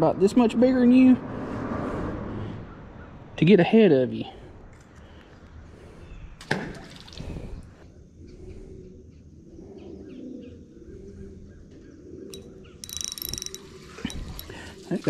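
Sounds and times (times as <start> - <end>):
birds calling: 9.5 - 15.0.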